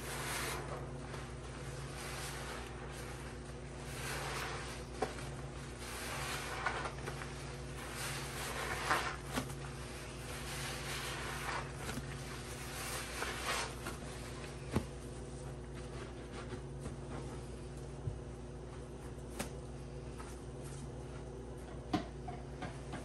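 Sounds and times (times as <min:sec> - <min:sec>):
wet sponges squelching: 0:00.0 - 0:18.0.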